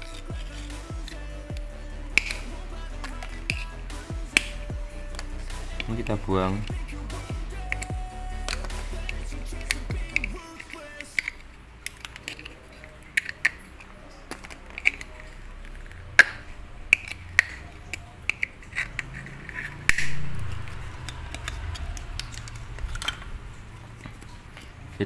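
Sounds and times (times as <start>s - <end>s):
pliers clicking on circuit board: 2.2s - 2.4s.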